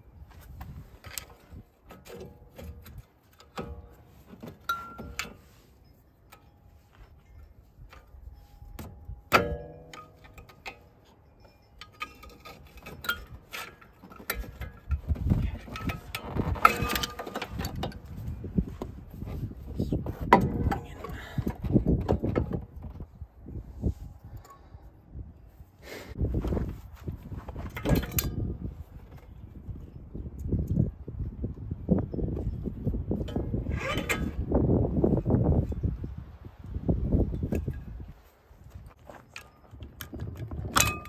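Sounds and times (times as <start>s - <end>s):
caliper scraping and knocking: 0.5s - 23.1s, 33.2s - 34.6s
metal tools clinking on brake: 4.6s - 18.5s
sharp ringing metal clank: 8.4s - 12.3s.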